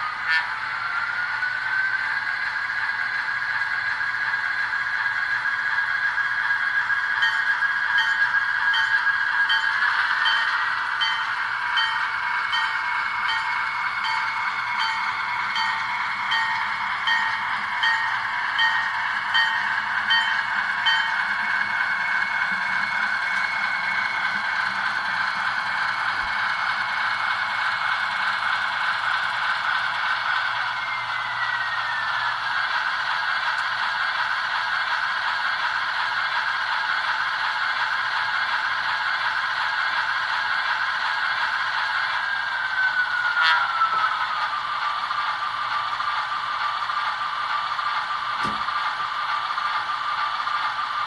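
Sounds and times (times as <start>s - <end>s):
hissing engine and motor: 0.0s - 51.0s
locomotive bell ringing: 7.2s - 21.6s.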